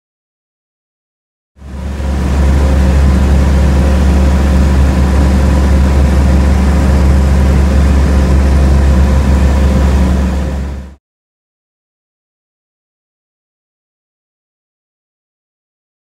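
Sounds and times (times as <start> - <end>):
airplane propeller engine drone: 1.6 - 11.0.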